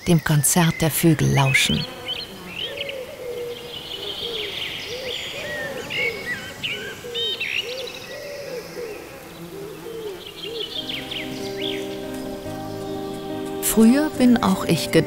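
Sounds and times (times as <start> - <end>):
small birds chirping: 0.0 - 15.0
pigeon cooing: 1.7 - 13.2
soft music with held notes: 10.6 - 15.0.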